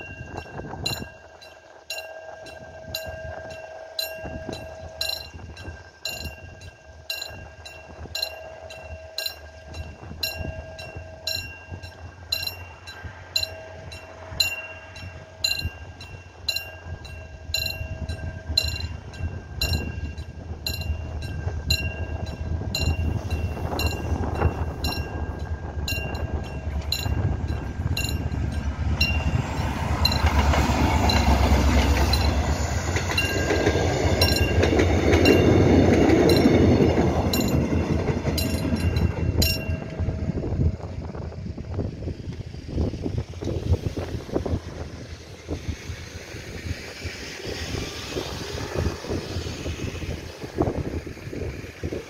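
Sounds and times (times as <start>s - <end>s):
level crossing warning bell: 0.0s - 41.3s
train rumbling: 0.0s - 52.0s.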